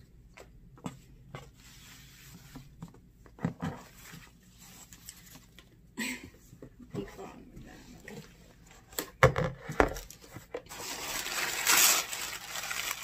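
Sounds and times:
fabric ribbon rustling: 10.7s - 13.0s.

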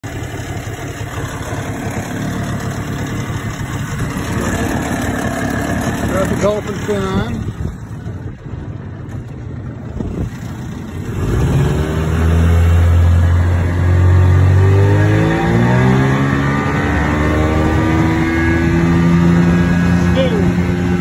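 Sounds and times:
outboard motor revving: 0.0s - 21.0s
wind noise: 3.6s - 11.6s.

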